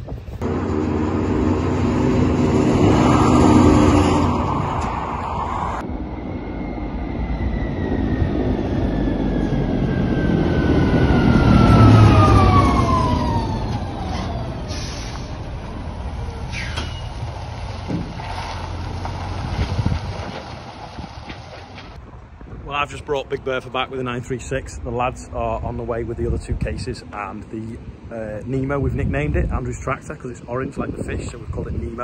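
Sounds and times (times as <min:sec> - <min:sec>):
heavy truck engine driving: 0:00.1 - 0:22.5
high whine falling in pitch: 0:00.4 - 0:15.4.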